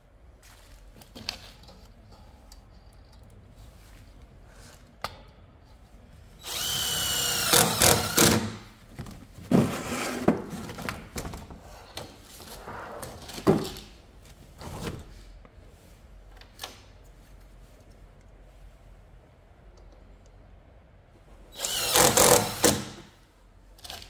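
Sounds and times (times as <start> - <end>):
impact driver driving screws: 6.4 - 8.6, 21.6 - 23.1.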